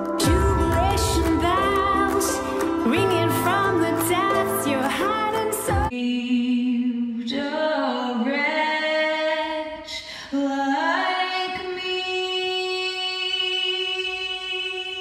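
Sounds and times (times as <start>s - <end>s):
woman singing long notes: 0.2s - 7.4s.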